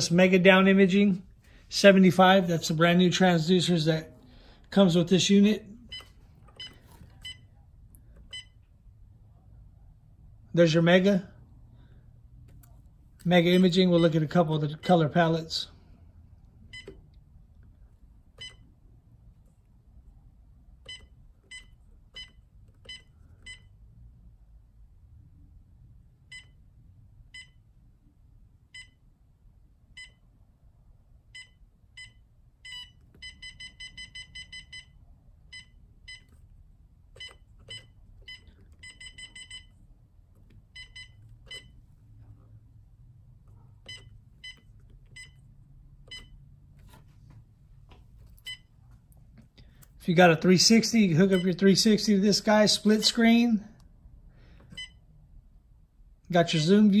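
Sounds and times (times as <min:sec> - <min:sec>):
short high key-press beeps: 0:05.9 - 0:07.5, 0:37.2 - 0:39.7, 0:40.7 - 0:41.8, 0:43.8 - 0:45.4, 0:46.1 - 0:46.4, 0:54.7 - 0:55.0.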